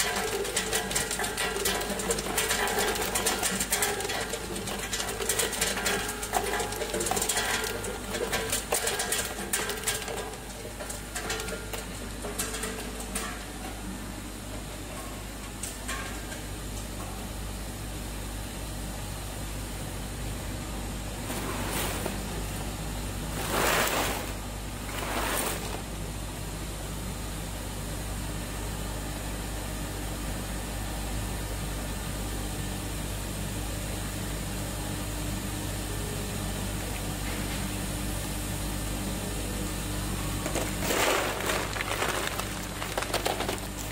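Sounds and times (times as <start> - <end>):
ice tubes rushing in plastic basin: 0.0 - 11.6, 21.2 - 22.5, 23.3 - 25.9, 40.4 - 43.9
refrigeration plant humming: 0.0 - 43.9.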